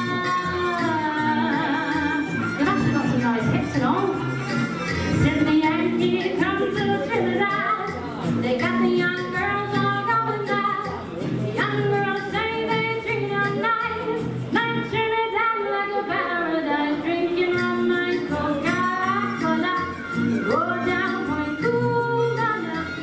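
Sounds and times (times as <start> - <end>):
accompaniment with steady beat: 0.1 - 14.6.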